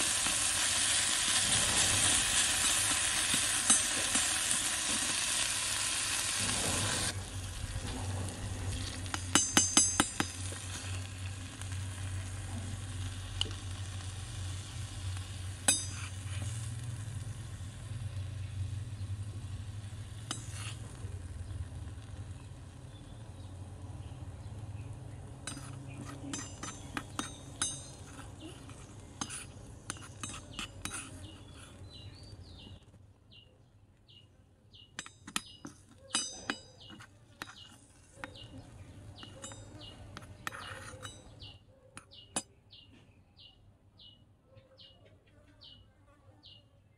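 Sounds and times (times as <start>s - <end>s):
meat sizzling in a wok: 0.0s - 30.1s
metal spatula scraping a wok: 0.1s - 17.7s, 19.4s - 21.4s, 25.4s - 32.8s, 35.0s - 41.6s.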